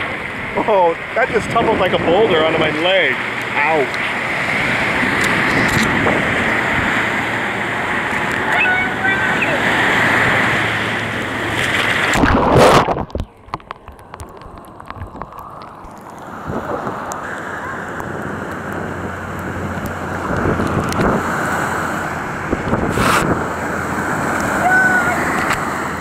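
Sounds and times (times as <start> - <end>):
wind buffeting microphone: 0.0 - 15.7, 16.3 - 26.0
loud rush of water: 0.0 - 26.0
surf washing through shallows: 0.0 - 26.0.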